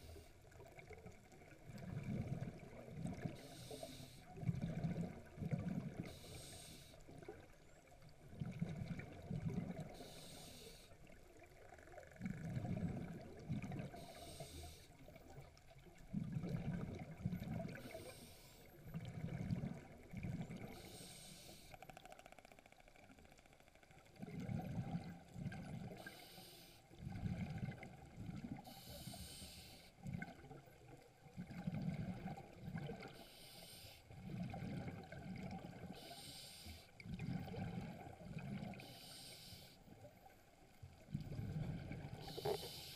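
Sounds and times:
exhaled bubbles rumbling: 0.0 - 3.4, 4.4 - 6.1, 7.2 - 9.9, 11.4 - 14.1, 15.1 - 18.0, 18.8 - 20.8, 24.1 - 26.0, 26.9 - 28.7, 30.0 - 33.2, 34.1 - 36.0, 37.0 - 38.8, 39.9 - 42.7
diver inhaling hiss: 3.4 - 4.3, 6.1 - 7.0, 10.0 - 10.9, 14.0 - 14.9, 17.8 - 18.7, 20.8 - 21.8, 26.0 - 26.8, 28.7 - 30.0, 33.2 - 34.1, 35.9 - 36.9, 38.8 - 39.8, 42.2 - 42.9.

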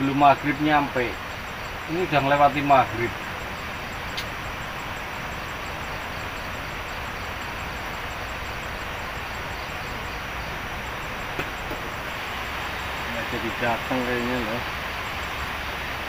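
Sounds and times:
steady rushing noise: 0.0 - 16.0
light click: 4.1 - 4.4.

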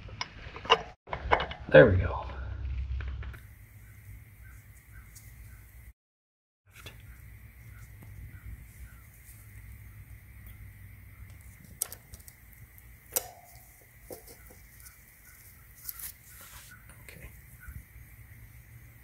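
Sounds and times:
faint steady hum: 6.7 - 19.0.

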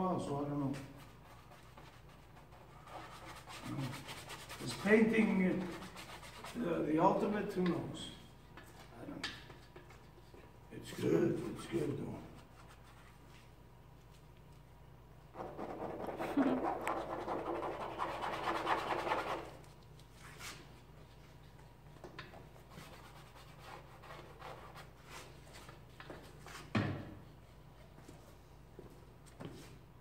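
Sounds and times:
paintbrush scrubbing on canvas: 0.7 - 6.7, 15.4 - 19.6.

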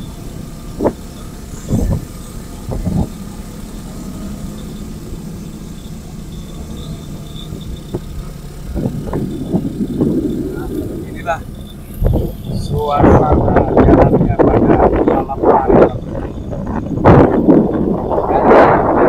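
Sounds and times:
vehicle engine running: 0.0 - 19.0.

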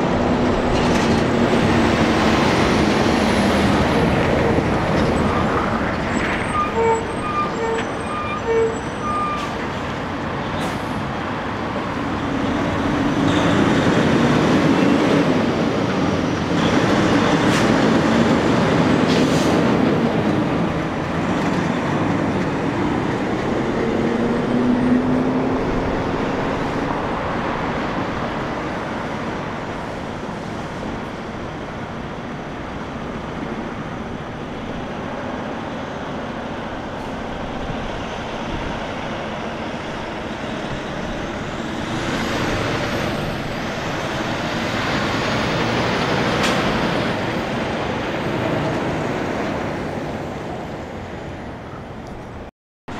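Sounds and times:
trucks passing by: 0.0 - 52.9
short beeps: 6.5 - 9.4.

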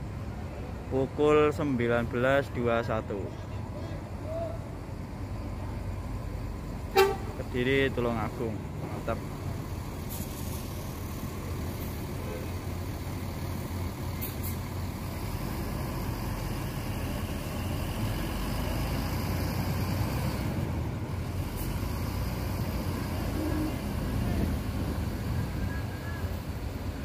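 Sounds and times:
bus diesel engine pulling away: 0.0 - 27.0.

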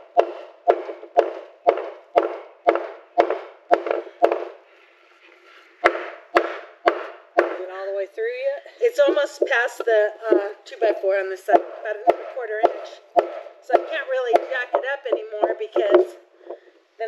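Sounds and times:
hammer striking wooden block: 0.0 - 4.6, 5.8 - 7.7, 10.3 - 16.6.

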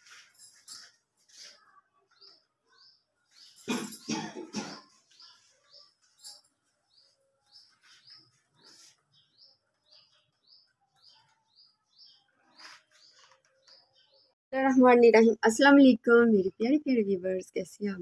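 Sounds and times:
small bird chirping: 0.7 - 14.4.

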